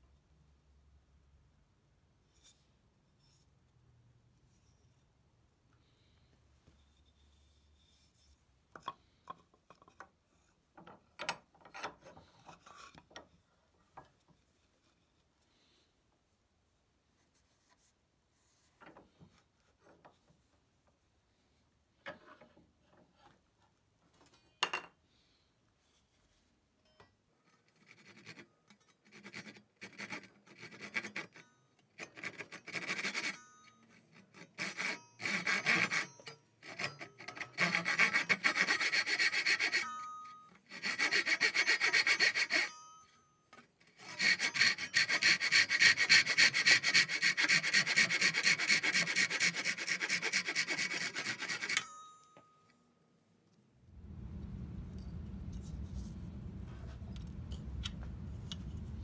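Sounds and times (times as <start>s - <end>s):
hand saw rasping strokes: 27.7s - 40.1s, 40.7s - 43.0s, 43.9s - 51.9s.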